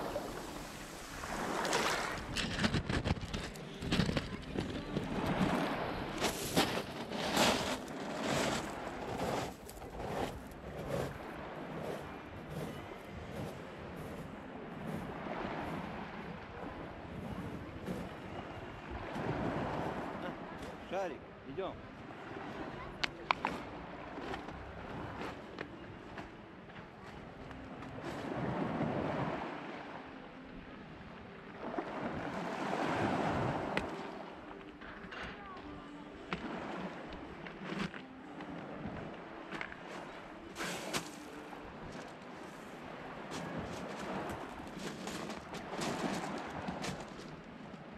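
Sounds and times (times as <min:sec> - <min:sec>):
waves washing over pebbles: 0:00.0 - 0:18.2, 0:42.5 - 0:47.4.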